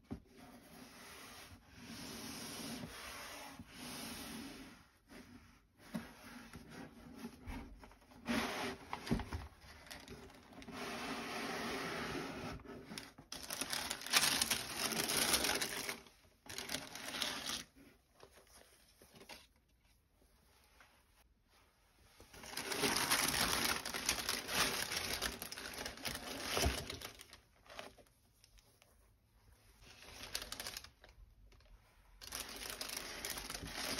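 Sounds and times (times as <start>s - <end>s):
tissue paper crinkling: 13.0s - 19.5s, 22.2s - 28.6s, 29.8s - 33.9s.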